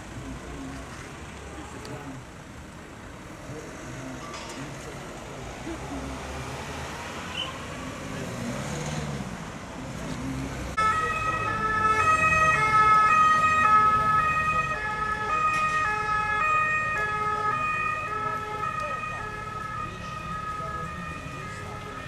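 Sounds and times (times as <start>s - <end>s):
traffic and vehicle engines: 0.0s - 22.0s
emergency siren: 10.7s - 22.0s.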